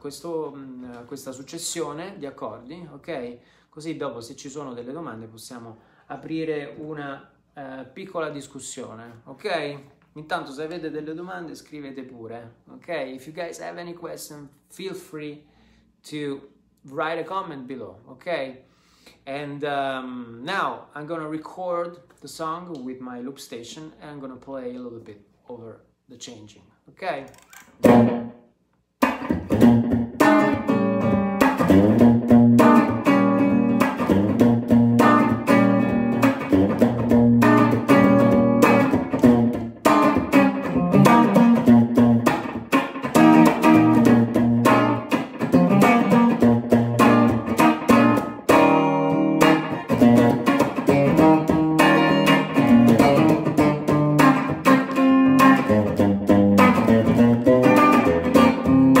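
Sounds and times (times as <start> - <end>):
electric guitar rhythm chords: 27.7 - 28.4, 29.0 - 59.0.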